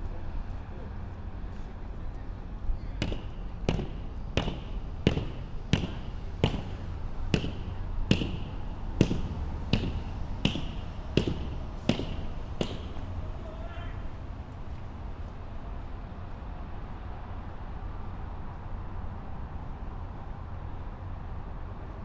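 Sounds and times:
footsteps tapping: 0:03.0 - 0:13.3.

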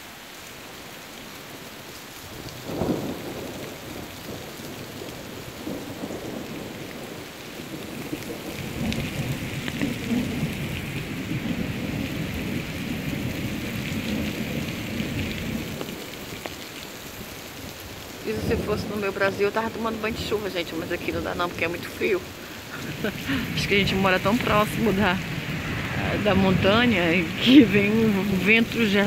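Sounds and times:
heavy rain falling: 0:00.0 - 0:29.0
thunder rumbling: 0:02.3 - 0:16.4, 0:17.1 - 0:29.0.

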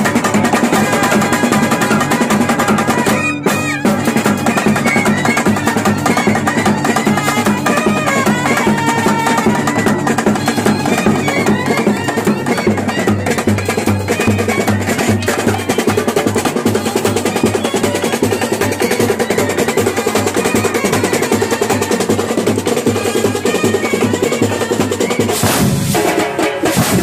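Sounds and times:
trumpet playing a tune: 0:00.6 - 0:27.0
snare and bass drums beating: 0:24.7 - 0:27.0.

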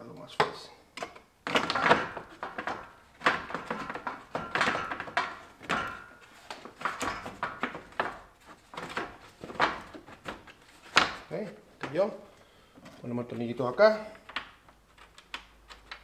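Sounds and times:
hard plastic knocking and scraping: 0:01.5 - 0:12.0.

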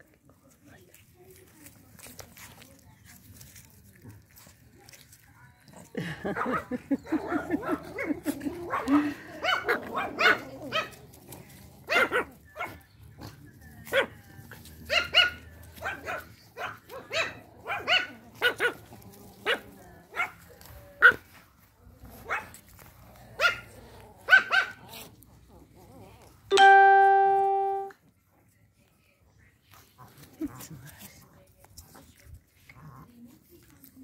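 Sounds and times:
small dogs yapping: 0:05.7 - 0:12.8, 0:13.8 - 0:20.4, 0:23.2 - 0:26.4
held musical note: 0:26.5 - 0:27.9.

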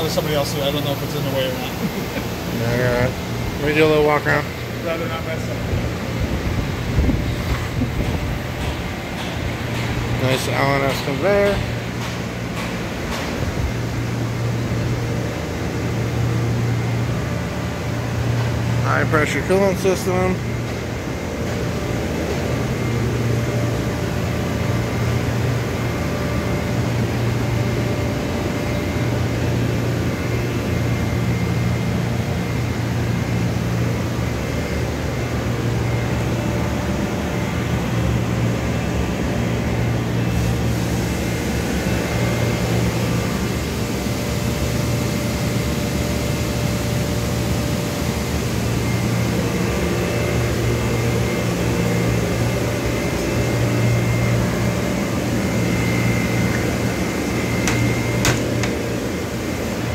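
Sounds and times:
machinery humming: 0:00.0 - 0:59.9.

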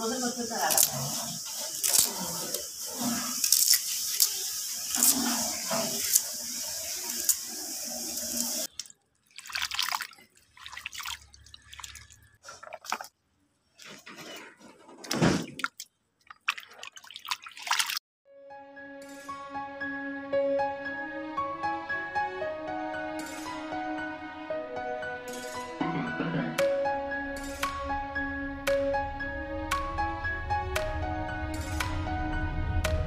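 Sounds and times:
hands splashing water in basin: 0:03.3 - 0:06.3, 0:08.6 - 0:13.2, 0:15.0 - 0:18.0.

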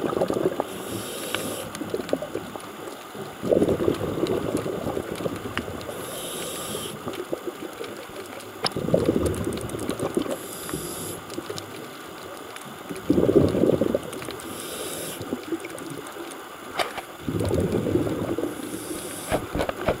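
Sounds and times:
exhaled bubbles underwater: 0:00.0 - 0:20.0
diver inhaling hiss underwater: 0:00.5 - 0:02.0, 0:05.9 - 0:07.2, 0:10.2 - 0:11.4, 0:14.3 - 0:15.4, 0:17.4 - 0:19.7.

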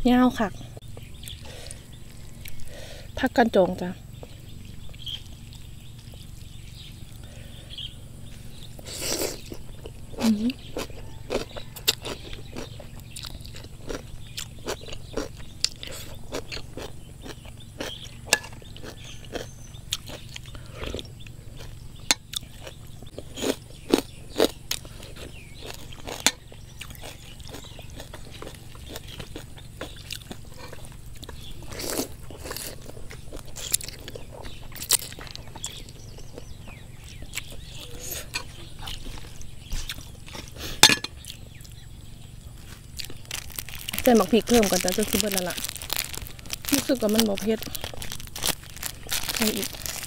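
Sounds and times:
crunching raw vegetables: 0:00.3 - 0:50.0
sharp clicks and crackles: 0:43.0 - 0:50.0.

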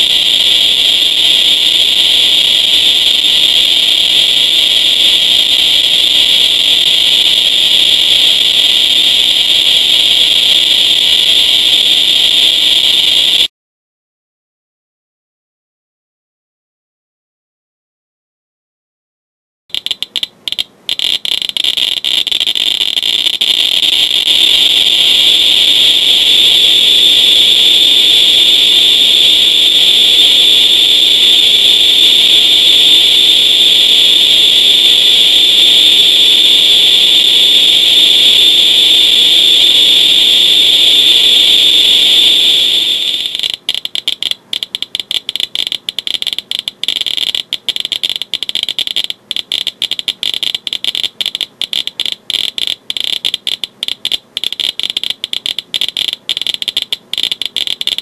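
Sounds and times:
geiger counter clicking: 0:19.7 - 0:27.9, 0:42.5 - 0:58.0.

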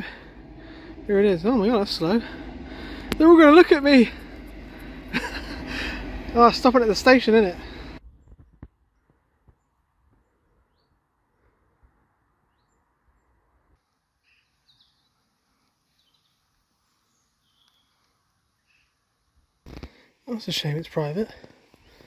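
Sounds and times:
faint bird chirps: 0:14.2 - 0:19.1.

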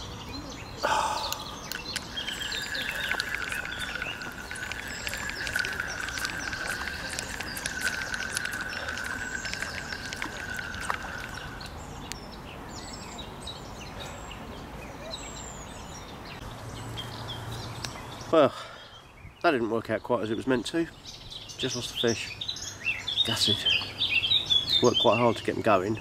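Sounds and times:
birds chirping: 0:00.0 - 0:26.0
wavering high whine: 0:01.6 - 0:12.1.

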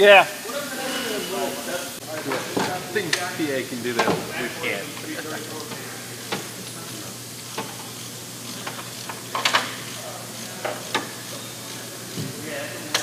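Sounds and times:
sharp clicks and knocks: 0:04.0 - 0:04.3, 0:08.6 - 0:09.8.

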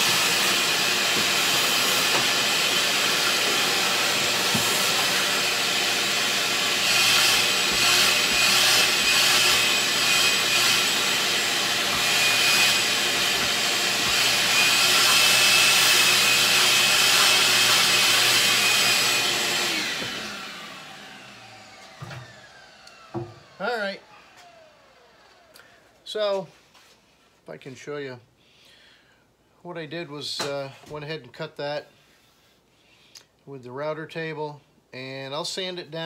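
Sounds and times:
router cutting wood: 0:00.0 - 0:26.0
router spinning down whine: 0:00.0 - 0:26.0.

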